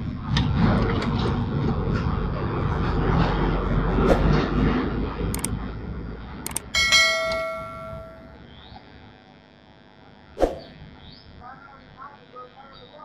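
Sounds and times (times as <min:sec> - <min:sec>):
sharp click: 0:05.3 - 0:05.5, 0:06.4 - 0:06.7
notification bell ding: 0:06.8 - 0:08.4.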